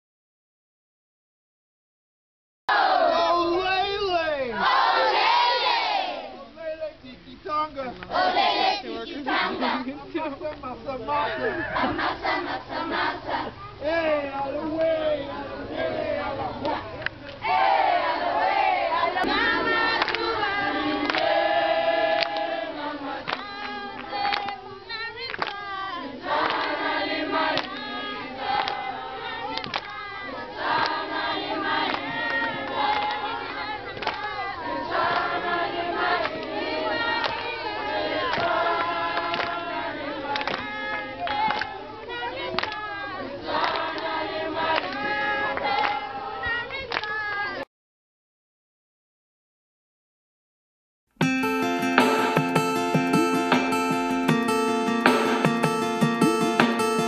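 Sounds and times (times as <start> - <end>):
children singing in chorus: 17.5 - 46.7.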